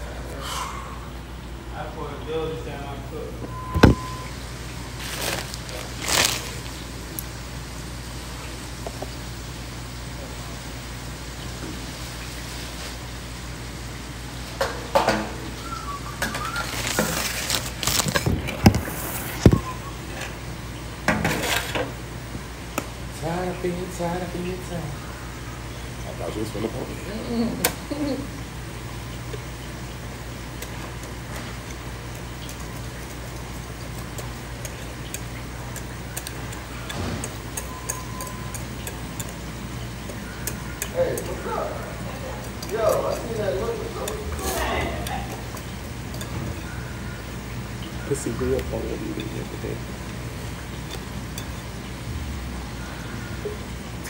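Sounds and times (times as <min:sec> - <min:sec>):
frying sizzle: 0:00.0 - 0:54.0
kitchen hum: 0:00.0 - 0:54.0
foil pan crinkling: 0:04.9 - 0:07.2, 0:16.2 - 0:20.3, 0:30.0 - 0:46.6
metal tongs clattering: 0:33.9 - 0:41.4, 0:42.1 - 0:46.8.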